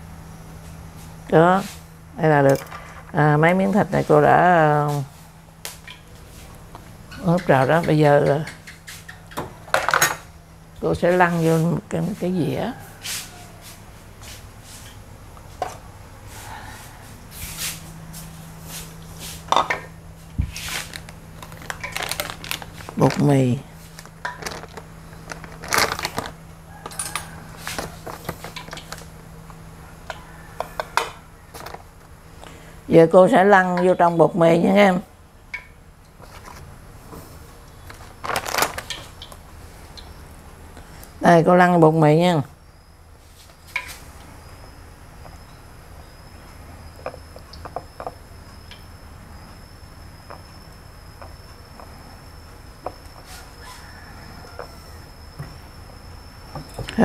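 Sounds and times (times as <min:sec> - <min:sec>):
plastic bag crinkling: 0:20.5 - 0:26.4, 0:37.9 - 0:39.2
high-pitched whine: 0:39.7 - 0:57.0.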